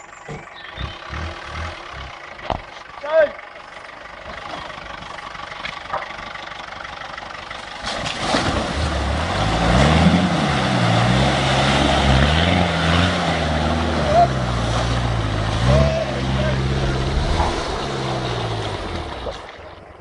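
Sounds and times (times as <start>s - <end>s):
diesel engine revving: 0.0s - 20.0s
tyres splashing through water: 7.6s - 19.8s.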